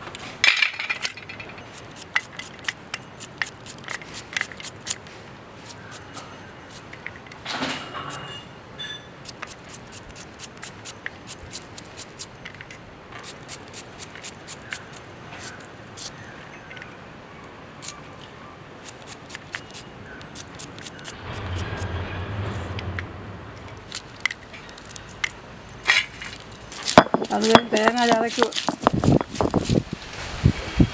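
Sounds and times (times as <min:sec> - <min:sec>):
knife slicing shallots: 0:09.2 - 0:12.3, 0:13.2 - 0:16.1, 0:18.8 - 0:21.9, 0:26.7 - 0:29.8.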